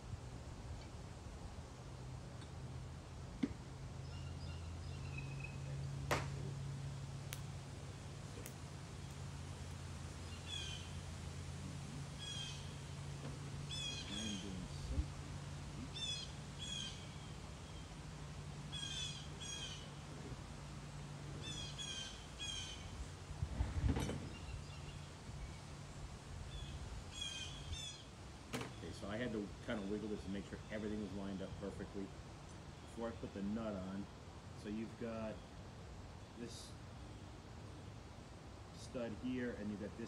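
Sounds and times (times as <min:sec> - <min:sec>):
steady low hum: 0:00.0 - 0:40.0
bird chirping: 0:03.4 - 0:07.1, 0:10.2 - 0:11.0, 0:11.8 - 0:12.8, 0:13.6 - 0:18.0, 0:18.7 - 0:20.4, 0:21.3 - 0:23.1, 0:24.2 - 0:25.7, 0:26.5 - 0:31.7.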